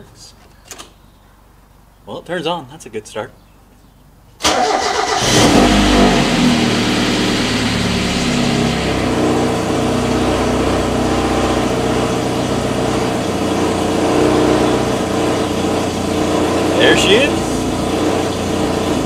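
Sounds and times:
car engine idling: 0:04.4 - 0:19.0.

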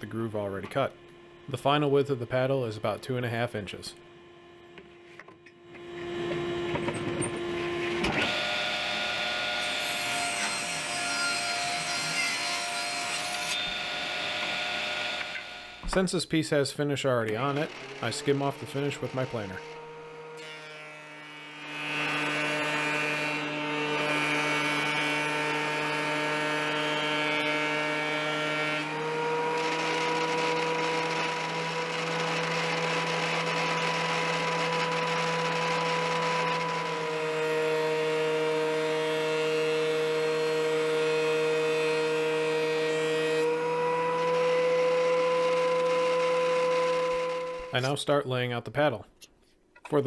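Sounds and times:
thickness planer whining: 0:00.0 - 0:16.1, 0:17.2 - 0:47.9.

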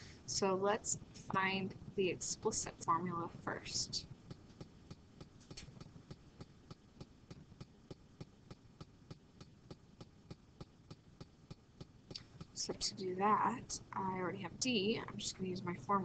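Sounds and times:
low hum: 0:00.0 - 0:16.0
stylus ticking on pen tablet: 0:04.2 - 0:12.9.

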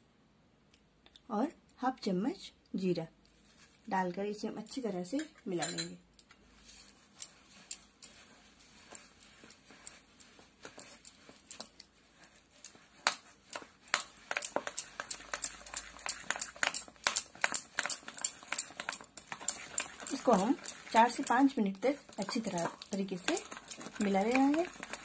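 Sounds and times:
hand slapping wet batter: 0:08.8 - 0:25.0.

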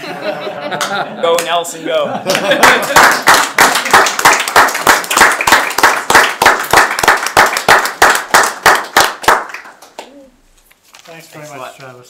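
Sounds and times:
people applauding: 0:02.3 - 0:10.2.

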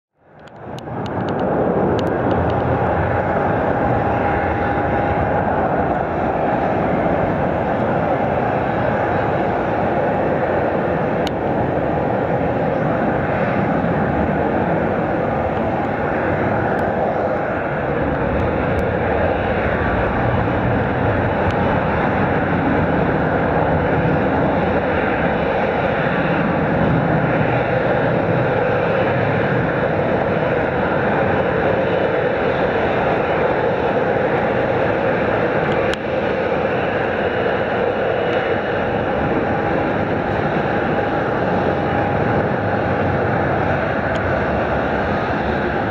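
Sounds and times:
jet engines running: 0:00.2 - 0:45.9.

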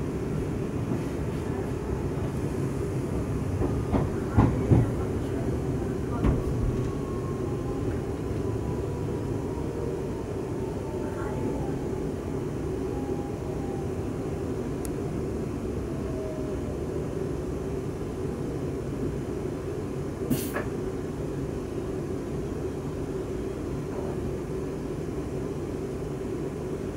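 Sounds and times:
train running rumble: 0:00.0 - 0:16.4.

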